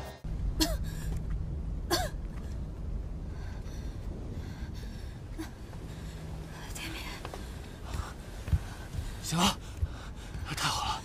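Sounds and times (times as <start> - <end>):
low steady rumble: 0.2 - 11.0
woman coughing and gasping: 0.5 - 1.1, 1.8 - 2.3.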